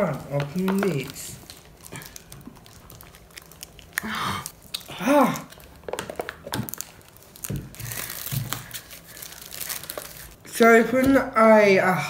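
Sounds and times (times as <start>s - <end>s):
plastic wrap crinkling: 0.0s - 10.4s
person grunting: 4.0s - 5.5s.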